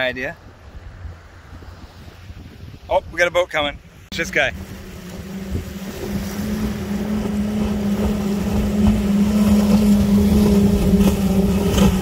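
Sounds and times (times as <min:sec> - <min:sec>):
powerboat engines droning: 0:04.1 - 0:12.0.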